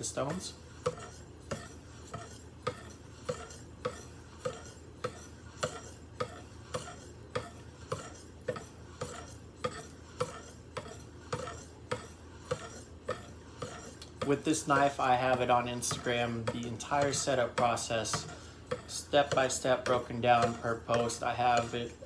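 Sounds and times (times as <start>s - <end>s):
sharpening stone ticking on blade: 0.8s - 14.3s.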